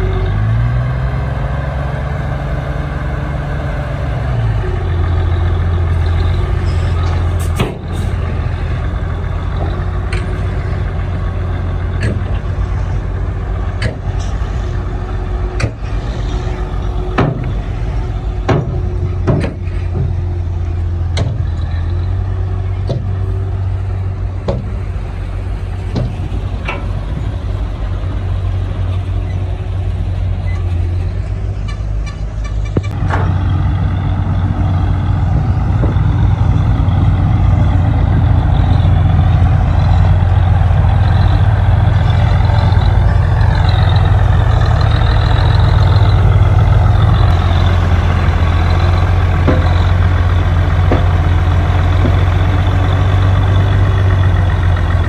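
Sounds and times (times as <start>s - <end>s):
diesel machinery running: 0.0s - 55.0s
metal clanks: 25.9s - 27.3s.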